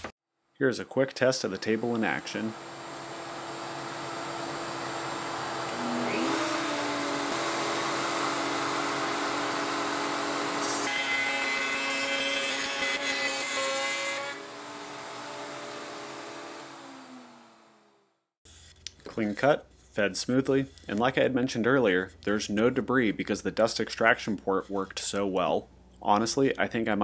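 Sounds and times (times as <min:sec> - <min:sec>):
router bit cutting wood: 0:01.4 - 0:18.0
router motor humming: 0:01.6 - 0:18.0.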